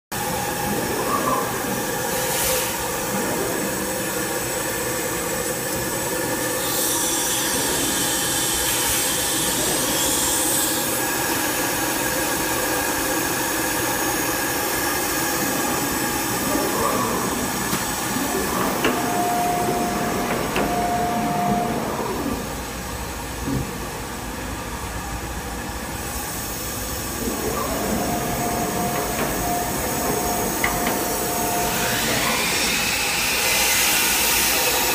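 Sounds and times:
machine whining tones: 0.2 - 23.1, 26.6 - 34.9
cnc router mechanical hiss: 0.2 - 34.9
higher whine: 15.1 - 22.9, 27.0 - 32.9.

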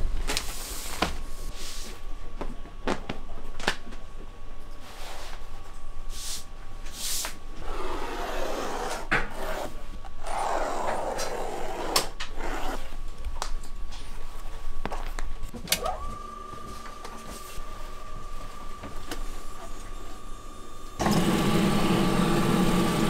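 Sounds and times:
leather scraping on table: 8.2 - 12.9
electric motor whine: 20.9 - 23.0.

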